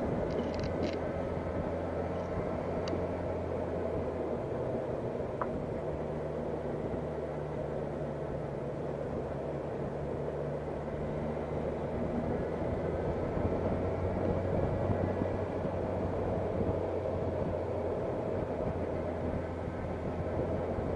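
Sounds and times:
wind and road noise: 0.0s - 20.9s.

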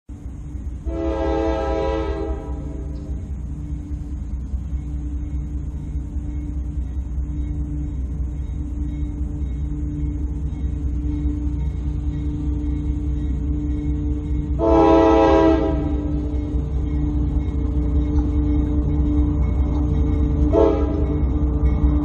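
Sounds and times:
locomotive air horn blast: 0.8s - 3.2s, 14.6s - 16.2s, 20.5s - 21.0s.

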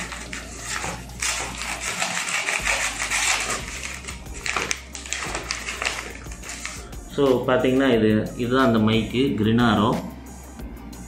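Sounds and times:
scissors cutting paper: 0.0s - 6.9s
stiff paper crinkling: 0.0s - 6.9s.

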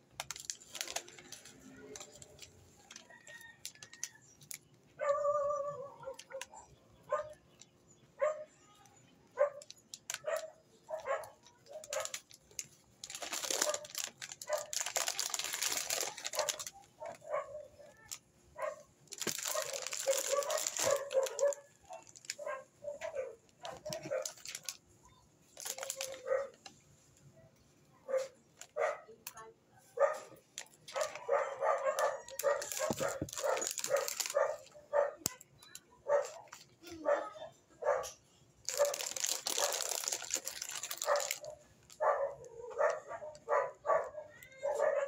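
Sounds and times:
plastic packets crinkling: 0.0s - 4.8s, 9.4s - 26.7s, 30.4s - 36.8s, 38.6s - 44.7s
pet yelping: 16.3s - 24.4s, 30.9s - 35.2s, 41.0s - 45.0s.

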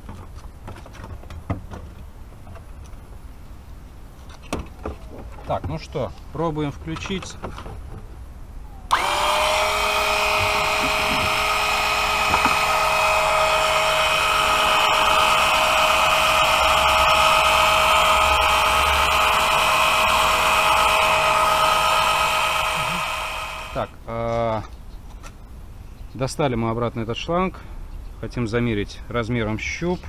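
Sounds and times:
electric pump whining: 8.9s - 23.9s.

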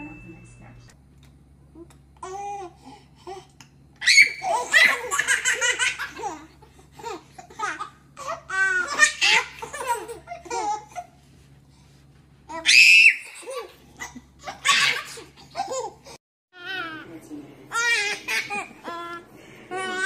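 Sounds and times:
babies laughing: 4.0s - 11.1s, 12.7s - 16.0s, 17.7s - 20.0s.

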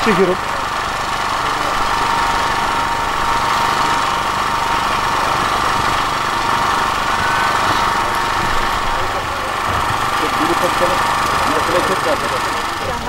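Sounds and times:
engine running steadily: 0.0s - 13.0s.

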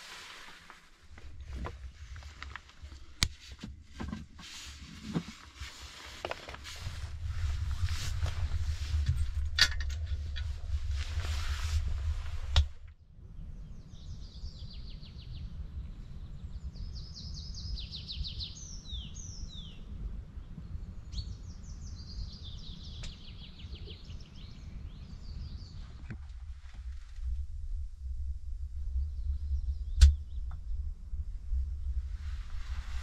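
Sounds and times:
steady low rumble: 0.0s - 17.7s, 18.9s - 33.0s
songbird singing: 12.9s - 26.5s, 28.8s - 31.0s.

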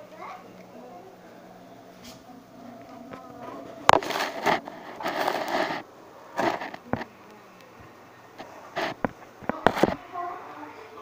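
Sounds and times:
fingers rubbing on microphone: 3.9s - 7.1s, 8.4s - 10.0s.

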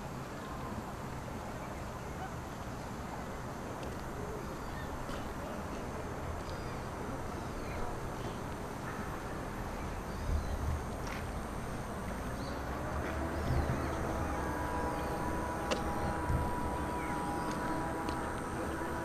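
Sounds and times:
low rumble: 12.5s - 19.0s.

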